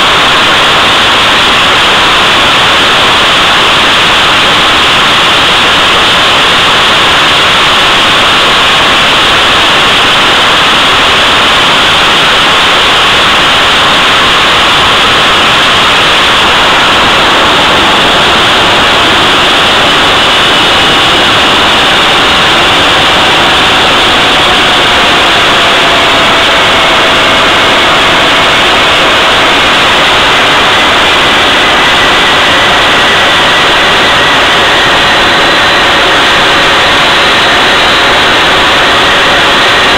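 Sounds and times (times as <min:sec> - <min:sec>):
faint falling whine: 0:00.0 - 0:39.9
jet engine rushing noise: 0:00.0 - 0:39.9.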